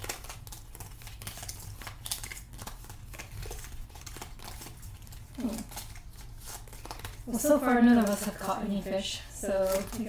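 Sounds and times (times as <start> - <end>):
playing cards flicking and sliding: 0.0 - 7.3.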